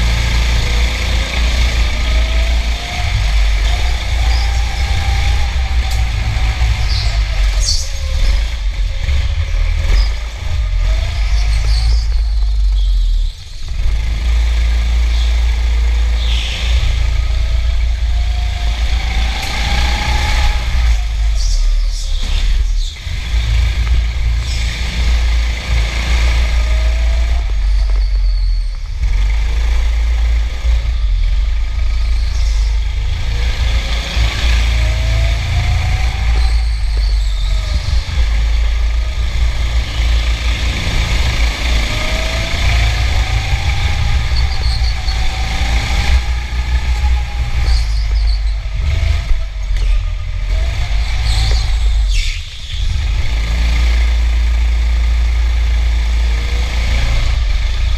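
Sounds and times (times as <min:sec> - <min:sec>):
go-kart motor revving: 0:00.0 - 0:57.9.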